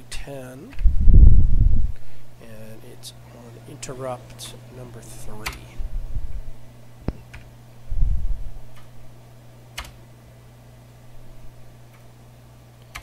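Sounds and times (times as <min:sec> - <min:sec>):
steady low hum: 0:00.0 - 0:13.0
keyboard keystrokes: 0:09.8 - 0:10.0.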